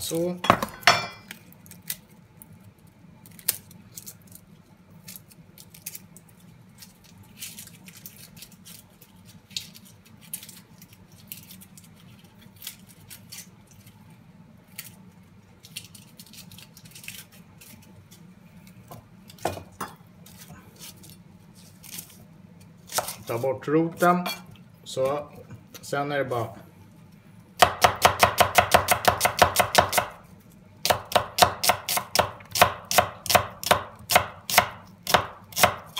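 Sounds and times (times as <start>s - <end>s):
low steady hum: 0.0s - 35.9s
onion skin peeling crackles: 1.3s - 19.4s, 20.2s - 23.6s.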